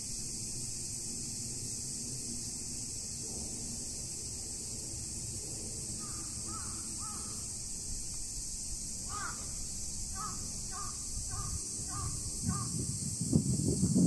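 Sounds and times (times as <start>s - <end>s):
bird harsh calls: 6.0s - 7.5s, 9.1s - 12.8s.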